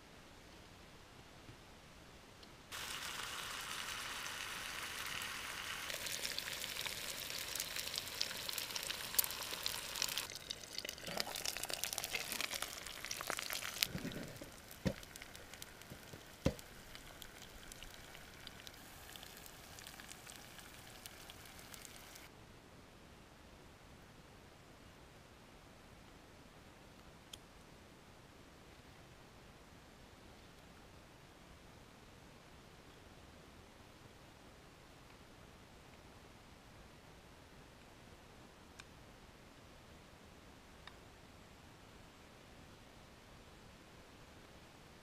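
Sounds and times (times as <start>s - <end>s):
eggs sizzling in frying pan: 2.7s - 22.3s.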